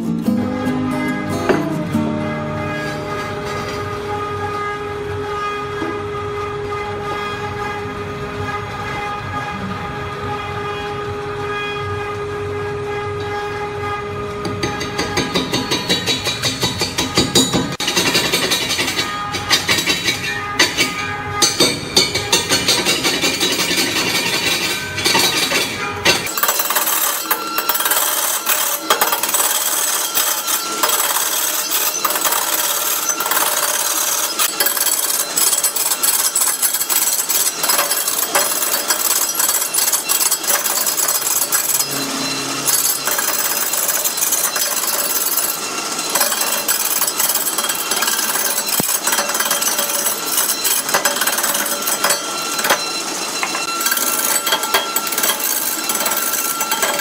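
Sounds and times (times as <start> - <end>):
lathe tool chattering on wood: 14.5 - 42.0, 42.7 - 57.0.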